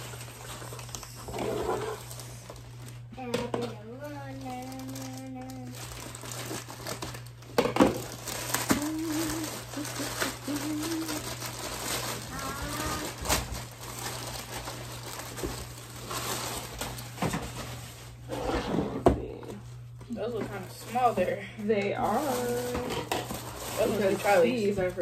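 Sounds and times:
plastic bag rustling: 0:00.0 - 0:18.7, 0:19.7 - 0:25.0.

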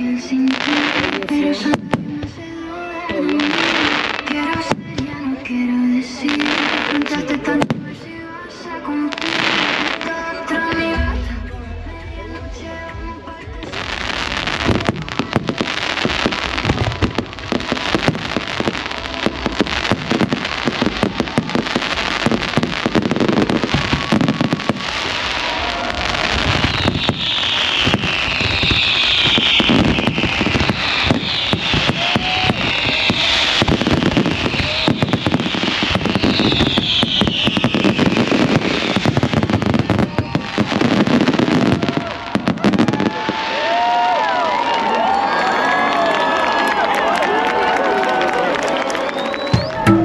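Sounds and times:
fireworks falling whistles: 0:00.0 - 0:02.3, 0:03.1 - 0:05.2, 0:14.0 - 0:45.8, 0:48.8 - 0:50.0
fireworks bangs and crackling: 0:00.0 - 0:50.0.

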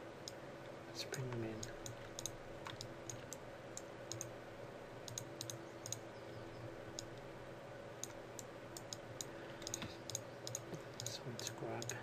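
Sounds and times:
steady low hum: 0:00.0 - 0:12.0
computer mouse clicking: 0:01.2 - 0:04.3, 0:05.0 - 0:06.1, 0:06.9 - 0:07.3, 0:08.0 - 0:12.0.

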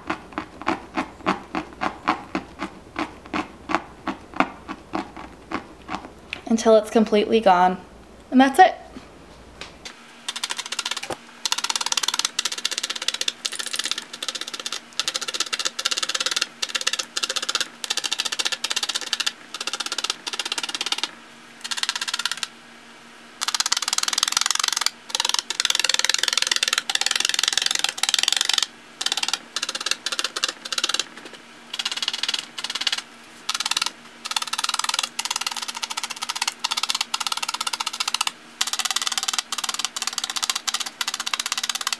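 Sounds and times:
felting needles ticking into fabric: 0:10.3 - 0:22.5, 0:23.4 - 0:41.9.

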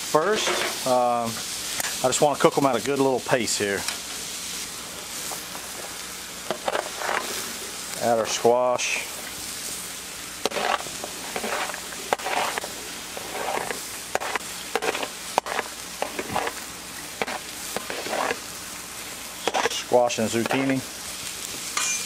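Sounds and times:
meat sizzling on a griddle: 0:00.0 - 0:22.0
metal spatula scraping tray: 0:00.2 - 0:00.8, 0:06.5 - 0:07.4, 0:10.4 - 0:16.6, 0:17.2 - 0:18.5, 0:19.4 - 0:20.8.

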